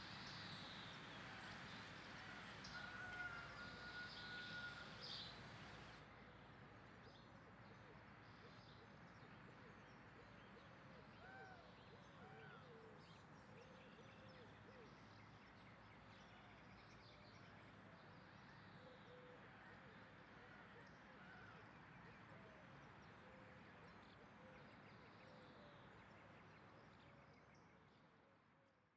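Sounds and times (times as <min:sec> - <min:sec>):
distant birds chirping: 0:00.0 - 0:06.0
steady low hiss: 0:00.0 - 0:06.6.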